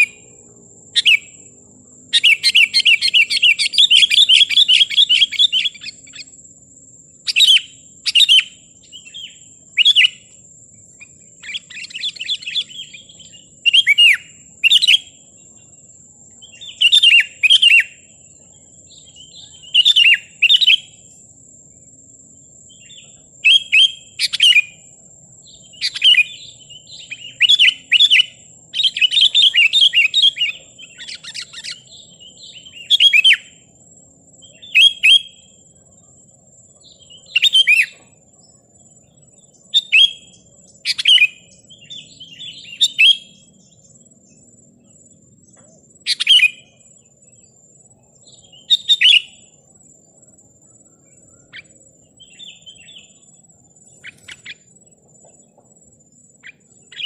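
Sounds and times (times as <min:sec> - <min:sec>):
faint steady high tone: 0:00.0 - 0:57.0.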